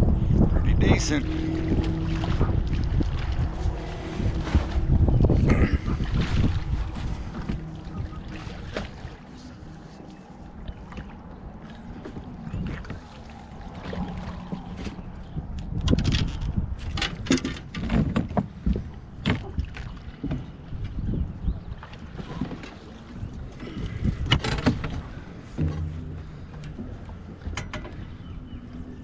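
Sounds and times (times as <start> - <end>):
water around boat: 0.0 - 29.0
wind: 0.0 - 29.0
knocks and rattles of fishing gear: 1.8 - 11.1, 13.8 - 20.5, 23.6 - 28.1.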